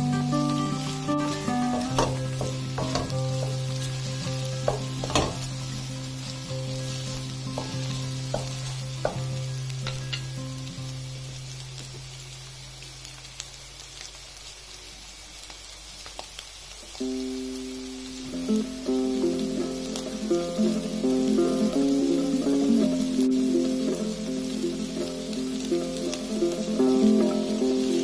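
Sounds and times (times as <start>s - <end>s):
food sizzling in a pan: 0.0s - 28.0s
wooden spatula scraping a pan: 0.4s - 10.3s.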